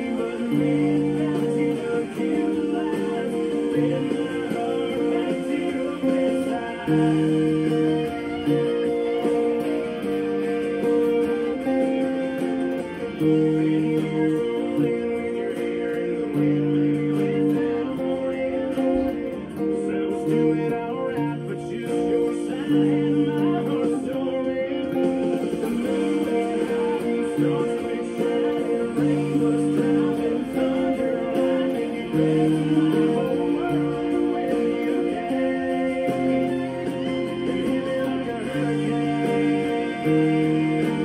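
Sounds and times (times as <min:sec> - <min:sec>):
country song with singer and drums: 0:00.0 - 0:41.0
electric guitar playing chords: 0:00.0 - 0:41.0.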